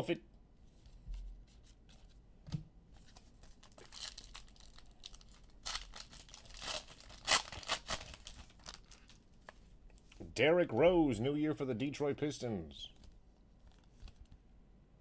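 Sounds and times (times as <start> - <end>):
wrapper tearing and crinkling: 3.4 - 9.2.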